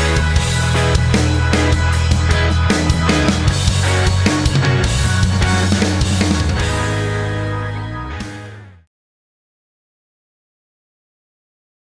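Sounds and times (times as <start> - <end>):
hard-driving rock music: 0.0 - 8.9.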